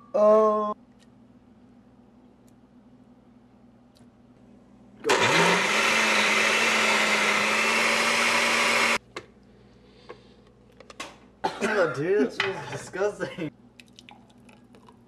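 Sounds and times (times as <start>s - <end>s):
blender motor whirring: 5.0s - 9.0s.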